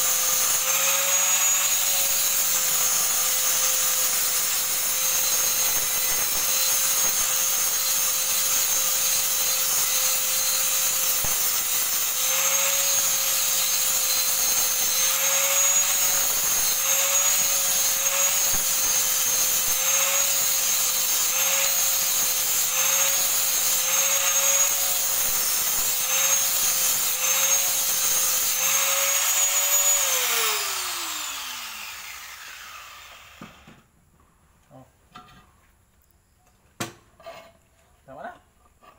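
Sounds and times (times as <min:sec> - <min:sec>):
angle grinder grinding steel: 0:00.0 - 0:33.8
grinder motor winding down: 0:12.1 - 0:33.6.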